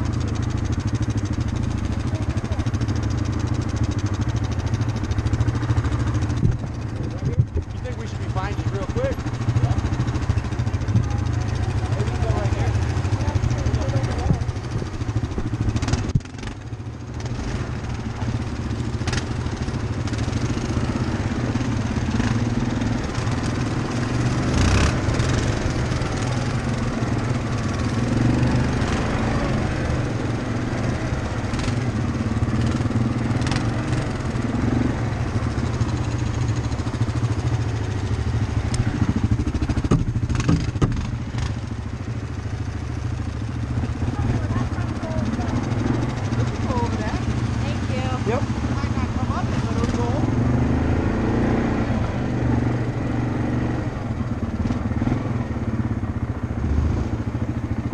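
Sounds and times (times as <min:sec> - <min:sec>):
atv engine running: 0:00.0 - 0:57.9
sharp knocks over bumps: 0:38.7 - 0:41.6.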